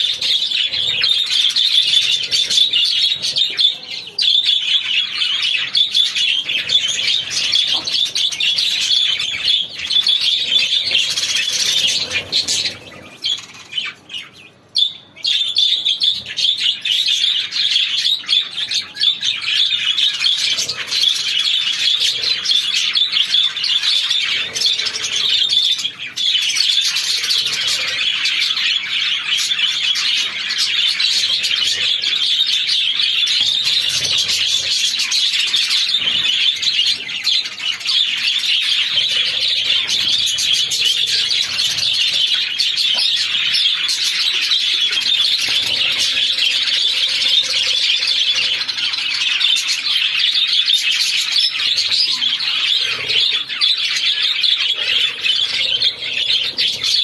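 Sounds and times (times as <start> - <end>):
budgerigars chattering: 0.0 - 57.0.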